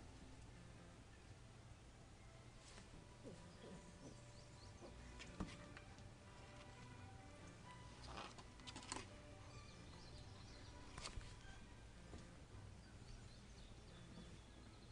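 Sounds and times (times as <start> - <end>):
faint bird chirps: 9.5 - 11.8, 12.7 - 14.9.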